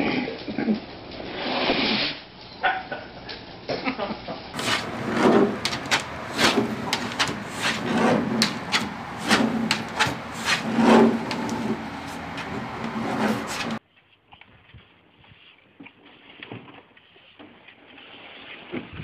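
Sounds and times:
tortoise claws scraping plastic: 4.6s - 13.8s.

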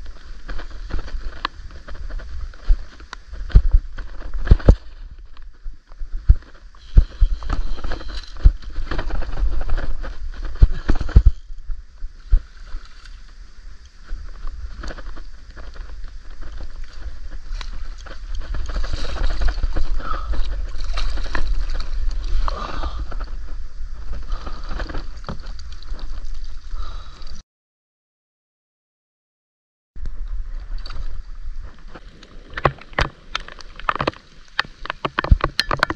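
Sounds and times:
low wind rumble on microphone: 0.0s - 27.4s, 30.0s - 35.9s
water splashing and sloshing: 12.1s - 13.3s, 14.7s - 26.7s, 31.6s - 35.9s.

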